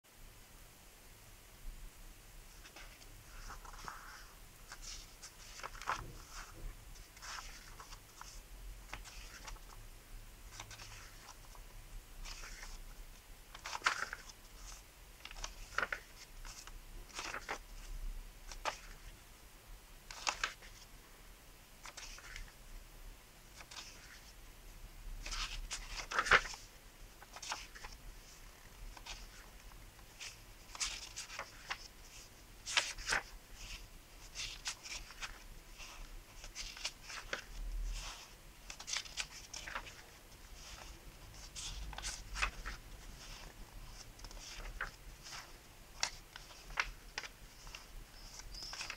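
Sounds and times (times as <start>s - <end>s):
book pages rustling and flicking: 2.5s - 9.8s, 10.5s - 11.6s, 12.2s - 17.9s, 18.5s - 19.2s, 20.1s - 20.9s, 21.8s - 22.6s, 23.5s - 24.4s, 25.2s - 48.9s.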